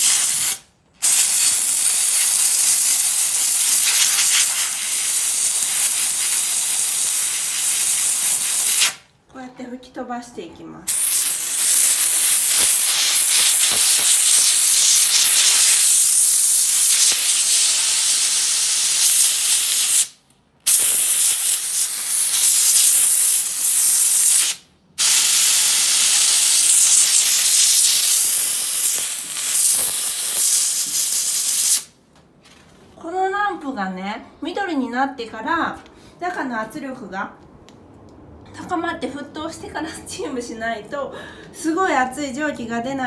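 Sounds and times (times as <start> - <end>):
steam jet hissing: 0.0 - 9.0, 10.9 - 31.9.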